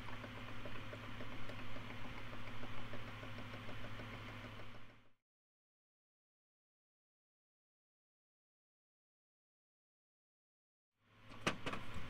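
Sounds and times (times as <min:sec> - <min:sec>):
steady low hum: 0:00.0 - 0:05.1.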